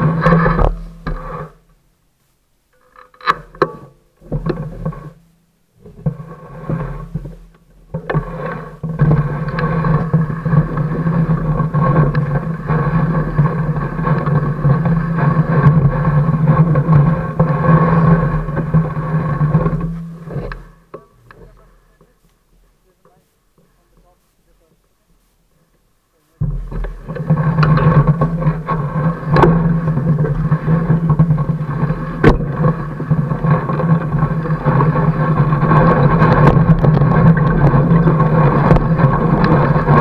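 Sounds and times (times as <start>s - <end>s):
bike rolling and rattling over snow: 0.0s - 1.7s, 2.7s - 5.2s, 5.8s - 22.2s, 26.4s - 40.0s.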